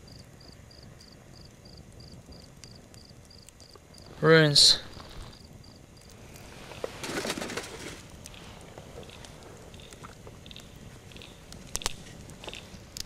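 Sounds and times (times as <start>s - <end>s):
small clicks: 9.0s - 13.0s.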